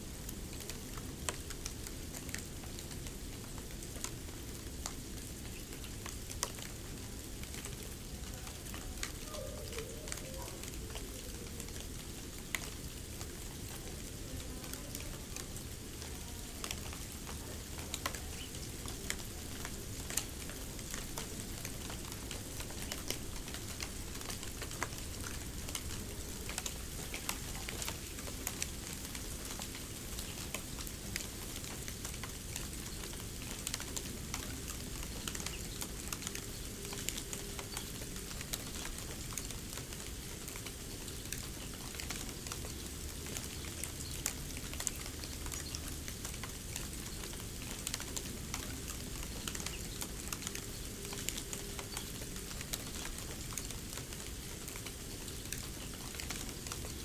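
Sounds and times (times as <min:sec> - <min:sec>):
snow crackling with ticks and pops: 0:00.0 - 0:57.0.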